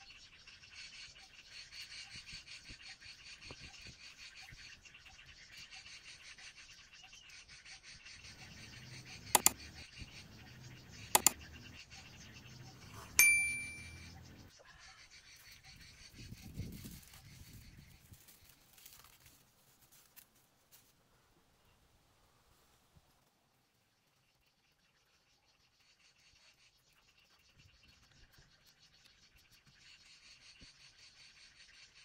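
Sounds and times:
quick sharp clicks: 8.3s - 11.6s
tea cup clinking: 13.2s - 14.0s.

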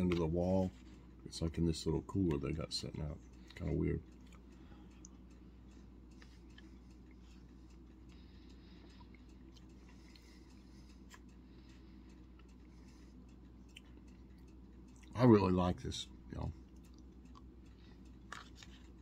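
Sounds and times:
steady low hum: 0.0s - 19.0s
faint irregular clicks: 2.1s - 15.2s, 16.0s - 19.0s.

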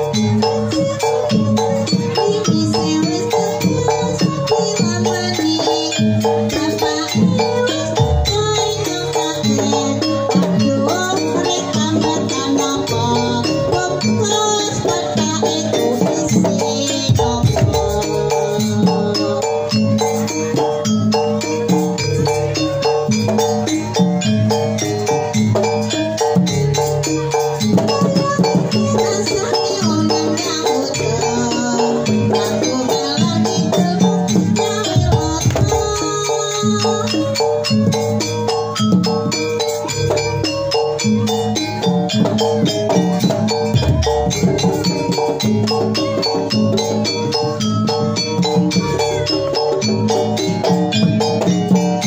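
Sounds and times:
drums: 0.0s - 52.0s
metal-keyed percussion melody: 0.0s - 52.0s
drum strokes: 37.6s - 52.0s.

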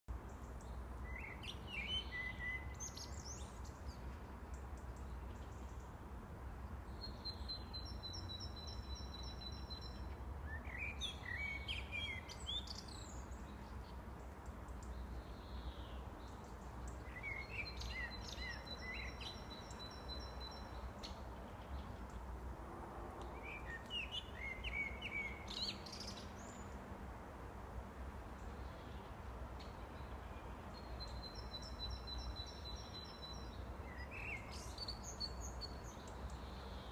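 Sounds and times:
blackbird singing: 0.4s - 4.0s, 7.0s - 14.0s, 14.7s - 21.2s, 23.3s - 26.7s, 30.0s - 36.9s.

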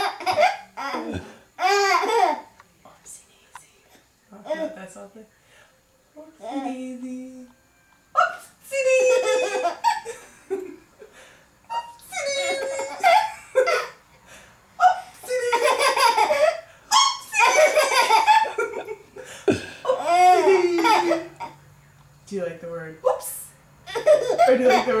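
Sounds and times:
baby laughing: 0.0s - 2.5s, 11.7s - 13.9s, 14.8s - 19.0s, 19.9s - 21.6s, 23.9s - 25.0s.

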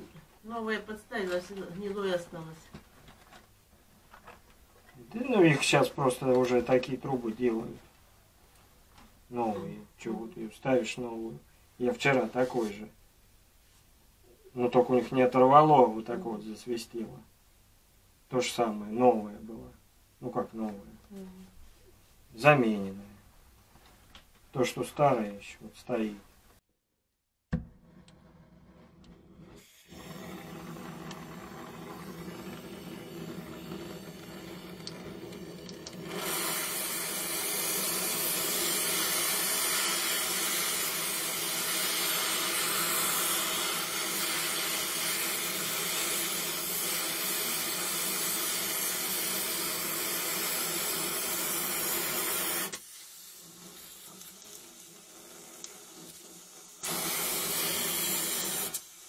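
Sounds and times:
gas torch flame hissing: 28.3s - 59.0s.

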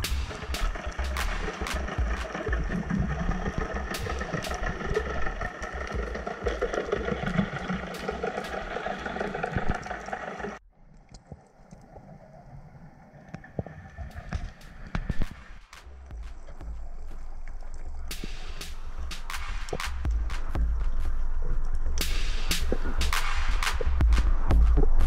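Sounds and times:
underwater boat engine drone: 0.0s - 10.6s
sharp clicks: 0.0s - 11.9s.

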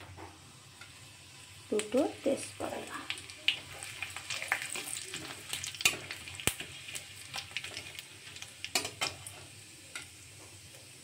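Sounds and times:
spices sizzling in hot oil: 0.0s - 11.0s
metal spatula stirring: 3.6s - 10.1s.

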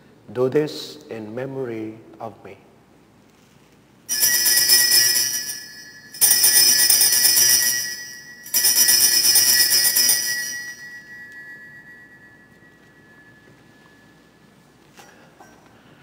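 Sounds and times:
altar bells jingling: 4.1s - 15.7s.

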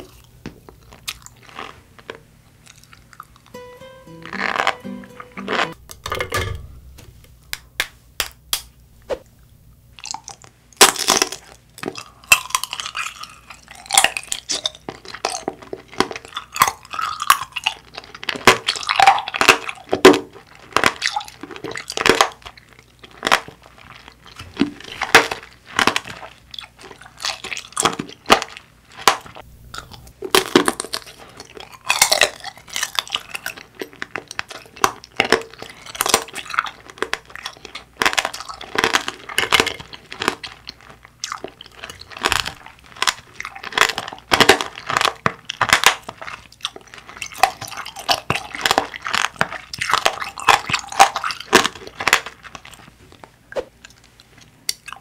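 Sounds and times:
candy shell crunching: 10.0s - 52.9s.

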